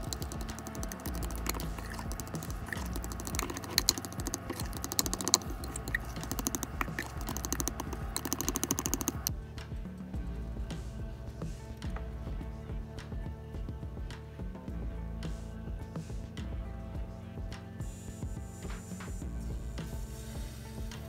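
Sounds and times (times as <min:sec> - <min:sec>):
spoon clicking and scraping glass: 0:00.0 - 0:09.3
music: 0:00.0 - 0:21.0.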